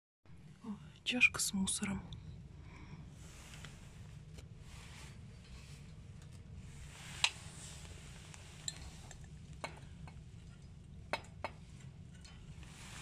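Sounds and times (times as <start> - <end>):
low steady hum: 0.3 - 13.0
glass mug clinking on metal hook: 8.6 - 9.0.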